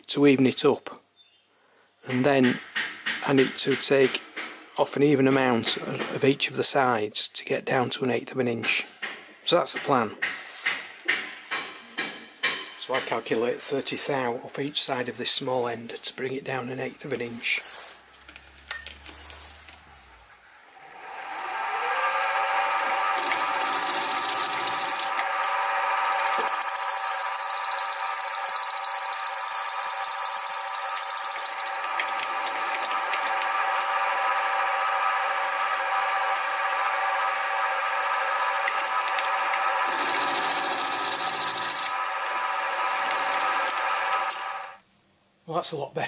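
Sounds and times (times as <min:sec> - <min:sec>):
mill spindle motor whine: 0:20.3 - 0:44.8
harsh cutting hiss: 0:20.4 - 0:44.8.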